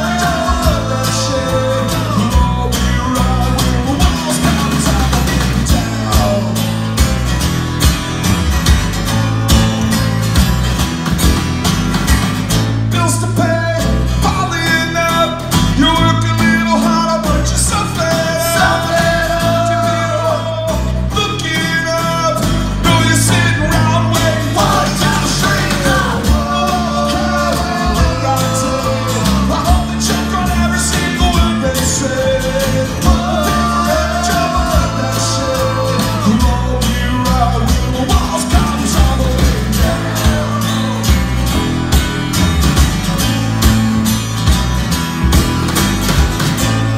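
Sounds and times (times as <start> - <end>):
man singing: 0.0 - 7.0, 12.8 - 41.6
electric bass: 0.0 - 46.9
strummed acoustic guitars: 0.0 - 46.9.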